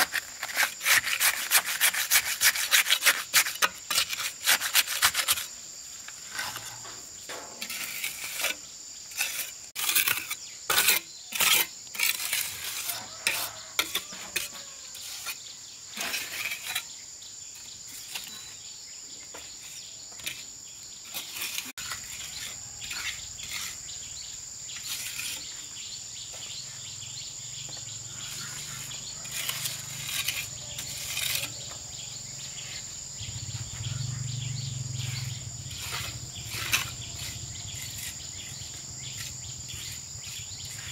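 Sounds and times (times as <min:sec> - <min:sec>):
hand tool scraping and knocking: 0:00.0 - 0:17.0, 0:21.1 - 0:24.1, 0:27.7 - 0:32.8, 0:35.0 - 0:40.9
insects chirring: 0:00.0 - 0:40.9.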